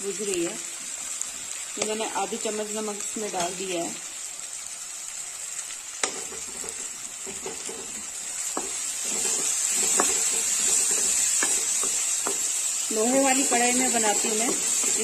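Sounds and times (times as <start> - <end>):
masala sizzling in iron pan: 0.0 - 15.0
metal spatula scraping pan: 6.0 - 12.5
spatula knocking on pan: 6.0 - 12.5.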